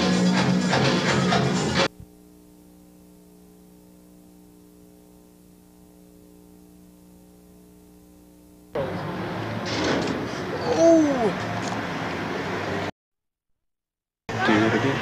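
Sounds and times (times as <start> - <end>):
loud club music with drums: 0.0 - 1.9
faint electrical hum: 1.9 - 12.0.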